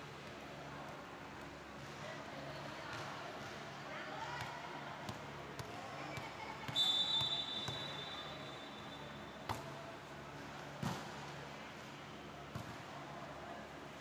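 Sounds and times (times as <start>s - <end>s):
low hall hum: 0.0s - 14.0s
referee's whistle: 6.7s - 9.2s.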